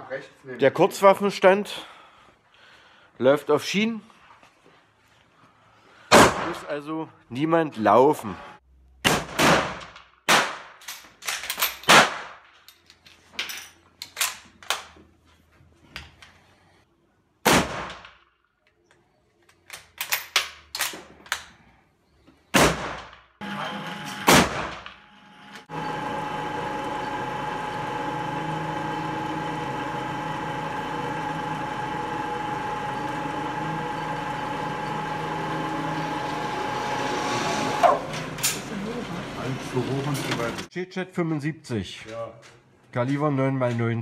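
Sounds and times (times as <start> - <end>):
rifle shots with ringing echo: 9.0 - 10.8, 11.9 - 12.4, 17.4 - 18.1
mechanical hum with whine: 23.4 - 40.7.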